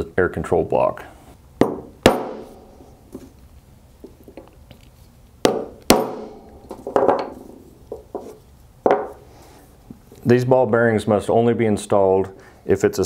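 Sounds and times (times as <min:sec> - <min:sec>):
hammer striking metal punch: 0:01.6 - 0:03.0, 0:05.4 - 0:07.6
tools knocking: 0:01.6 - 0:03.3, 0:05.5 - 0:09.2.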